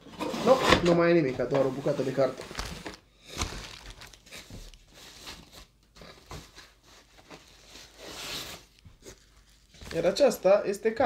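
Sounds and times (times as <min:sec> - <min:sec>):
packaging rustling and crinkling: 0:00.4 - 0:10.5.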